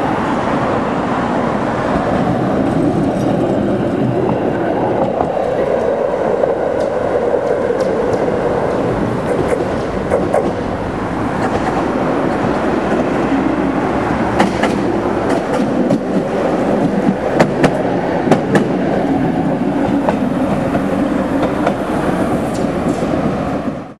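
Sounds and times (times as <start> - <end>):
tram rumbling past: 0.0 - 23.9
wheels clicking over rail joints: 2.6 - 13.4, 14.3 - 23.7.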